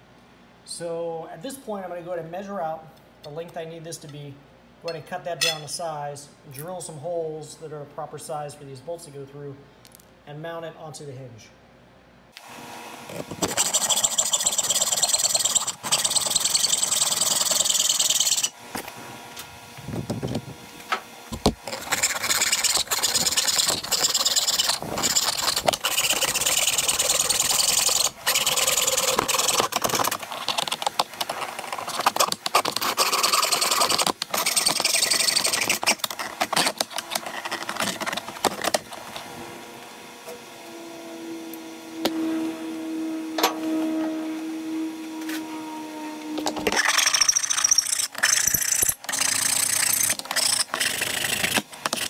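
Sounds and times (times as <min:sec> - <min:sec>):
hacksaw cutting metal tube: 0:13.1 - 0:18.6, 0:21.5 - 0:39.0, 0:43.4 - 0:44.2, 0:46.3 - 0:52.0.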